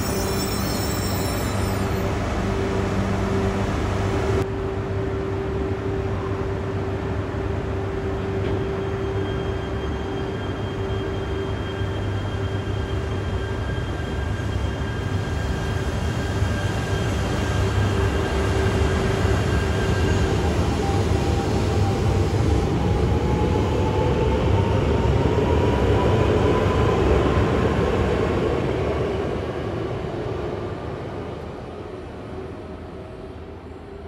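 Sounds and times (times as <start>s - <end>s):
train whine rising in pitch: 0.0s - 6.7s
train roaring past: 0.0s - 34.0s.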